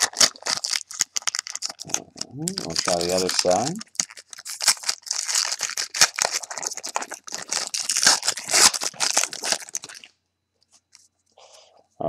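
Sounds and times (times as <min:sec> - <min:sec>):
foil wrapper crinkling: 0:00.0 - 0:10.1.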